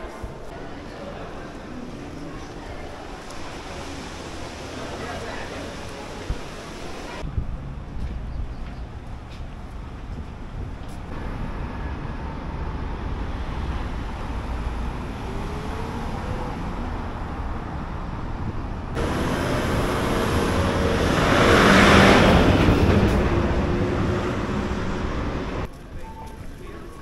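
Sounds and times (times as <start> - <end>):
road traffic rumble: 0.0 - 27.0
vehicle passing close: 18.9 - 25.7.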